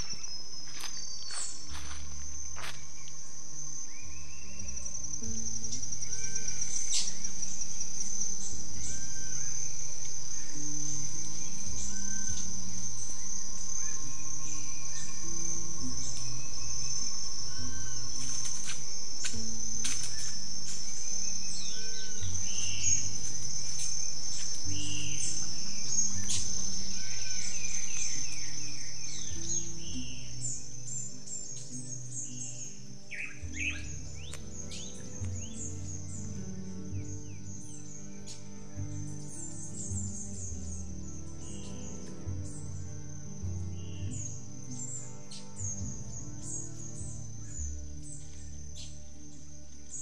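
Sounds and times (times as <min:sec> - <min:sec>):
background music: 0:00.0 - 0:50.0
high-pitched insect trill: 0:00.0 - 0:50.0
bird whistling: 0:31.5 - 0:36.2.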